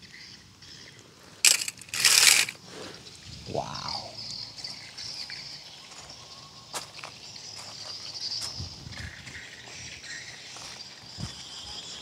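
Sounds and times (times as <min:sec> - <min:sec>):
insect chirring: 0:00.0 - 0:12.0
hard objects clattering: 0:01.4 - 0:02.6.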